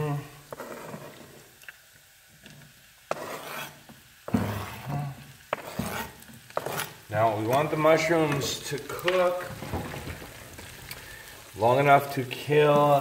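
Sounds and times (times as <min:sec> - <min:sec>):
mushrooms sizzling in frying pan: 0:00.0 - 0:13.0
knife scraping cutting board: 0:00.5 - 0:01.4, 0:03.1 - 0:07.0.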